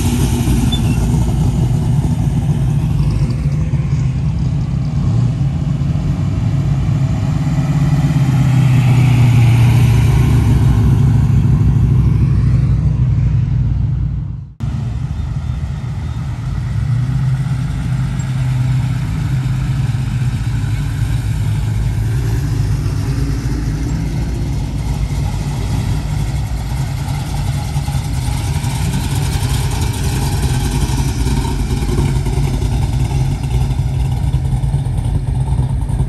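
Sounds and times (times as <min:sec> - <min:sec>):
car engines running at low speed: 0:00.0 - 0:36.0.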